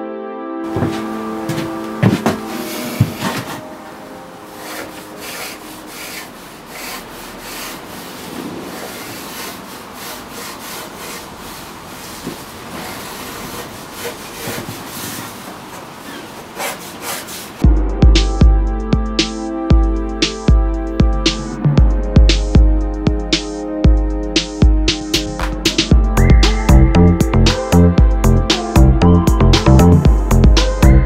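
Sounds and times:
pencil scratching on wood: 4.6 - 15.4, 16.2 - 17.6.

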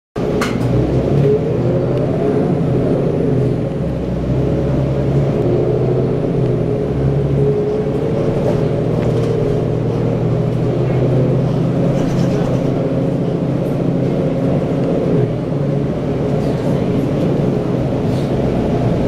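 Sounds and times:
bus engine drone from cabin: 0.2 - 19.0.

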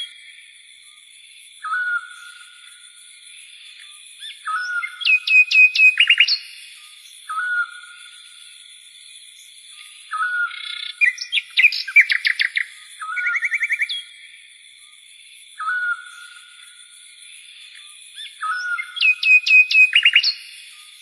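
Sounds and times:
birds chirping: 10.1 - 14.0, 18.2 - 21.0.

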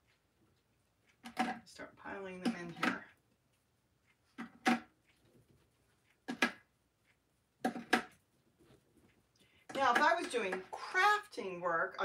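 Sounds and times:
cookies clacking against pan: 9.6 - 10.8.

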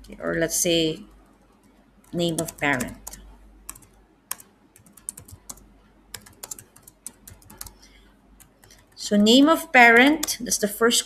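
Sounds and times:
computer keyboard typing clicks: 1.1 - 9.0, 10.0 - 10.4.

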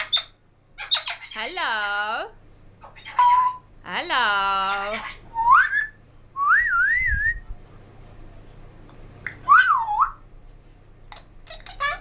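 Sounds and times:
parrot whistling: 3.1 - 3.6, 5.3 - 7.0, 9.4 - 10.2.

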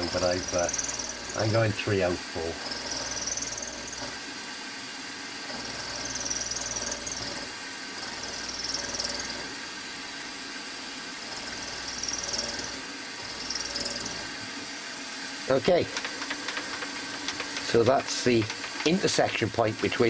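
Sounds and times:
high-pitched cutting squeal: 0.0 - 1.4, 2.7 - 4.1, 5.7 - 7.4
milling spindle hum: 0.0 - 4.2, 5.4 - 9.8, 11.1 - 14.7.

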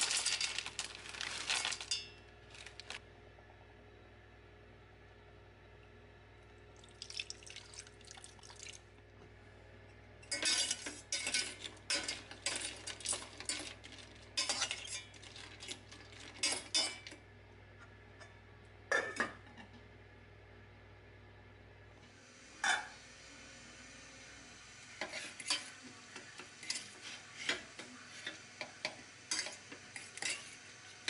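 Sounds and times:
fork scraping in saucepan: 25.0 - 25.7.

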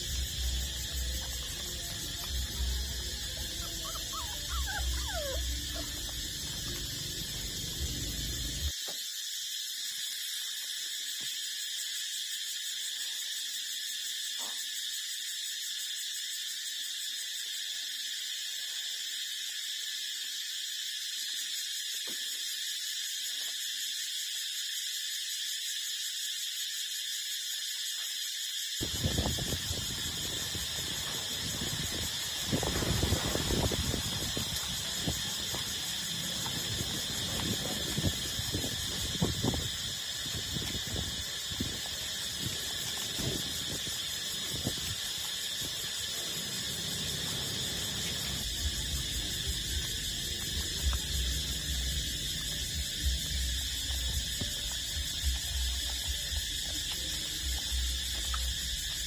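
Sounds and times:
puppy whimpers: 2.9 - 7.0.

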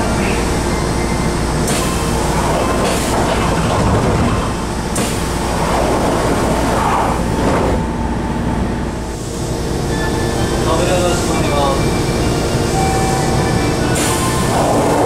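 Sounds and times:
stopped train noise: 0.0 - 15.0
train door sliding shut: 1.6 - 8.0, 11.0 - 15.0.

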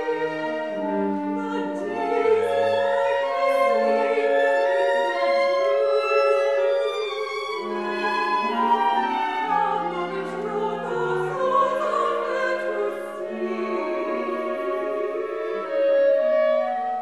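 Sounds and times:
instrumental accompaniment: 0.0 - 17.0
woman singing operatically: 0.2 - 4.7, 7.6 - 15.6.

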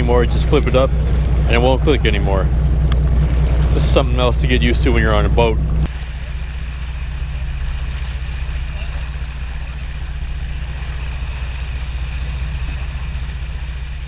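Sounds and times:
boat engine rumble: 0.0 - 14.0
churning water hiss: 5.9 - 14.0.

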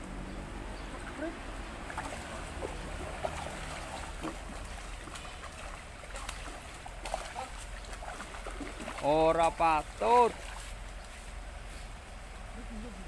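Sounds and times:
sharp water splashes: 0.9 - 10.8
fish thrashing in water: 1.8 - 9.2.

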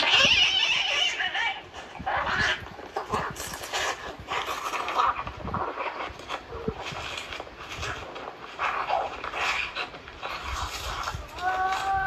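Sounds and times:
raspy animal cries: 0.0 - 3.3.

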